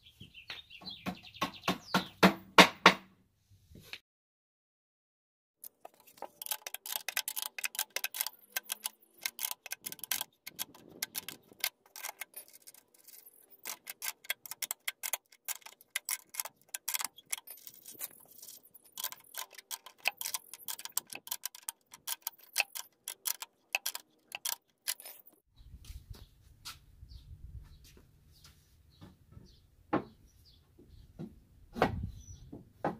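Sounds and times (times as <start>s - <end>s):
ratcheting wrench clicking: 5.6s - 25.3s.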